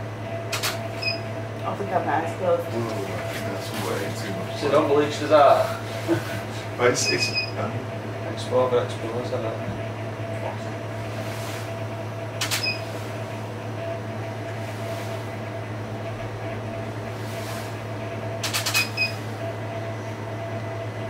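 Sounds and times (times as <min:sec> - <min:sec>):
low electrical hum: 0:00.0 - 0:21.0.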